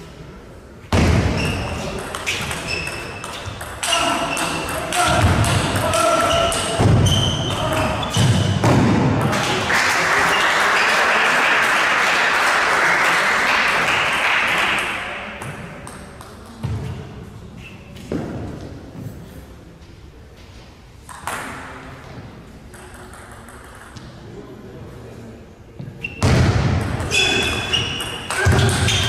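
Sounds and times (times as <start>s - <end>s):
spectators applauding: 9.3s - 14.9s.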